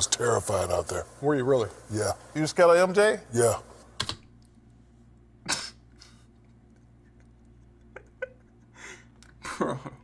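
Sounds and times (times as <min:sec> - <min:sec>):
man laughing breathily: 0:07.8 - 0:10.0.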